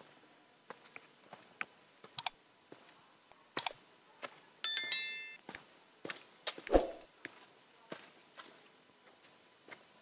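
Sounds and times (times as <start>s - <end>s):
bell-like notification ding: 4.7s - 5.4s.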